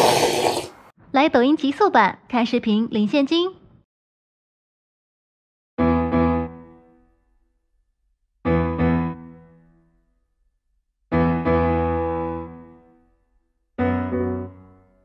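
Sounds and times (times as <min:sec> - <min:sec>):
piano chords ringing: 0:05.8 - 0:07.0, 0:13.8 - 0:15.0.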